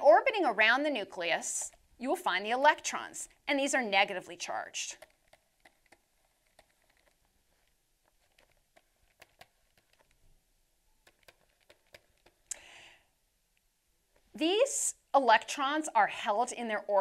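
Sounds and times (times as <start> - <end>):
stylus clicking on drawing tablet: 4.9 - 10.3, 11.0 - 12.5.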